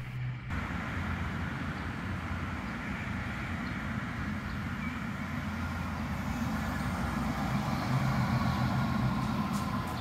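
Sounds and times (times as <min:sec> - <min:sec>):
tram rumbling on rails: 0:00.0 - 0:10.0.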